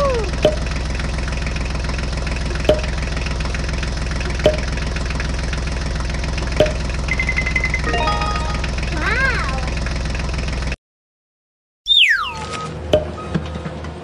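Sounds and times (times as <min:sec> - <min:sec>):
tractor engine idling: 0:00.0 - 0:10.8.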